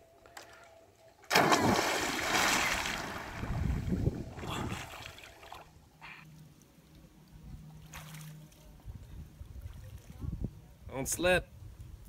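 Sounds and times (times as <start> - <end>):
loud splash into water: 1.3 - 5.0
small splashes of swimming: 1.3 - 5.7, 7.8 - 8.6
water churning and sloshing: 1.3 - 5.8.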